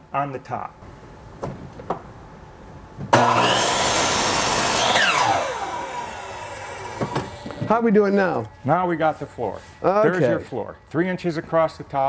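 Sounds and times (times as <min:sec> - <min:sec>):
miter saw cutting wood: 0:03.1 - 0:10.4.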